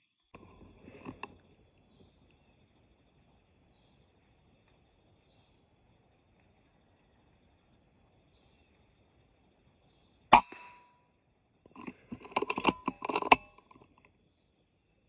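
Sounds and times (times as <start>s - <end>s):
sharp clicks and knocks: 0.9s - 1.4s, 11.7s - 14.0s
air rifle firing: 10.4s - 10.8s.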